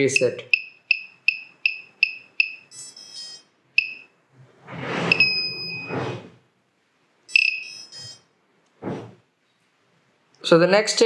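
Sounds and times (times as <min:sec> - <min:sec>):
buzzer beeping: 0:00.0 - 0:04.1, 0:05.1 - 0:05.9, 0:07.3 - 0:08.3.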